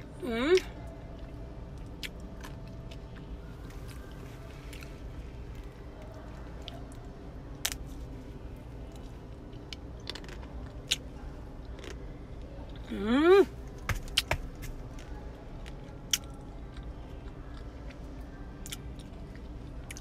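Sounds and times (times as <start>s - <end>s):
low steady hum: 0.0s - 20.0s
chewing crunchy chocolate: 8.8s - 12.9s.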